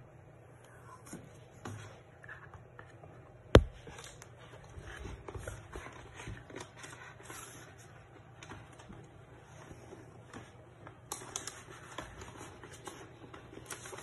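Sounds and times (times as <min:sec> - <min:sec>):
sharp knock: 0:03.6 - 0:03.8
paper liner crinkling and rustling: 0:10.3 - 0:14.0.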